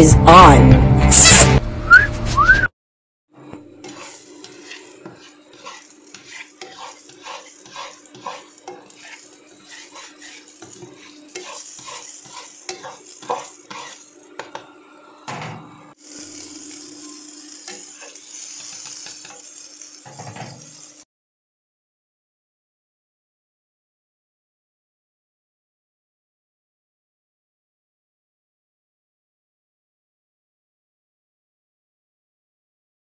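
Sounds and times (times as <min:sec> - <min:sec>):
butter sizzling in a frying pan: 0:03.7 - 0:14.7, 0:16.0 - 0:21.0.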